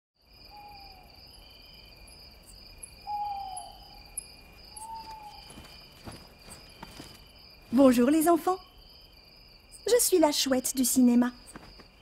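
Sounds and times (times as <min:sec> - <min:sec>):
crickets chirping: 0:00.2 - 0:12.0
owl hooting: 0:00.5 - 0:01.1, 0:03.0 - 0:05.7.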